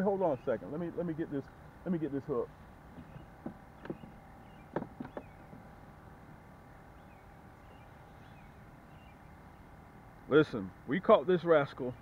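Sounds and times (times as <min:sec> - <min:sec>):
low background hum: 0:00.0 - 0:12.0
clicks and knocks in boat: 0:02.9 - 0:05.6.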